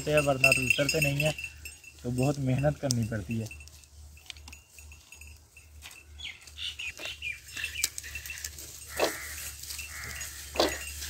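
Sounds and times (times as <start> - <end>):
small birds chirping: 6.0 - 10.9.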